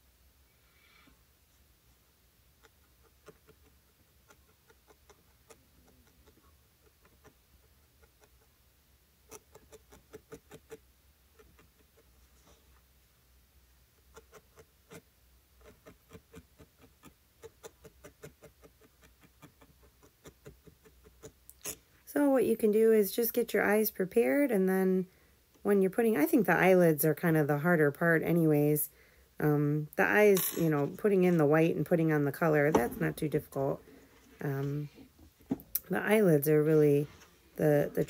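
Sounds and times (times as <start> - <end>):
felting needle ticks: 2.6 - 8.5, 9.3 - 12.1, 15.6 - 21.8.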